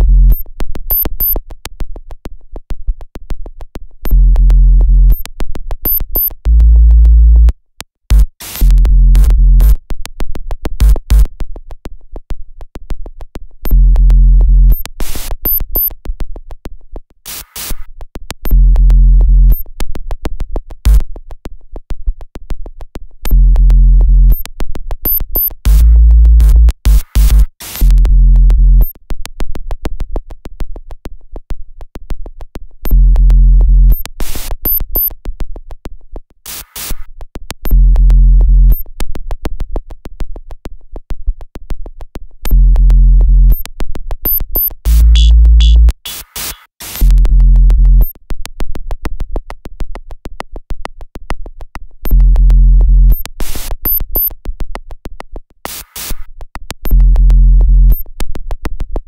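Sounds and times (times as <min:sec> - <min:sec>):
sharp digital clicks: 0:44.3 - 0:47.1.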